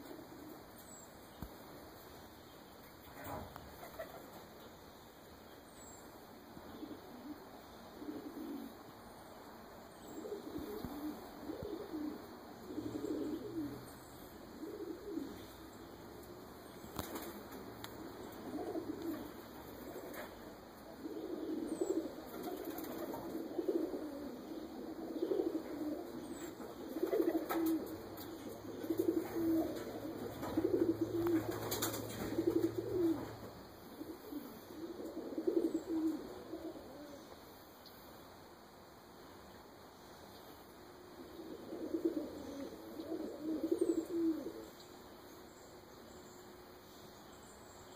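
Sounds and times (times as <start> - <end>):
pigeons cooing: 0.0 - 0.9, 3.1 - 4.6, 6.5 - 9.0, 10.0 - 37.5, 41.0 - 44.9.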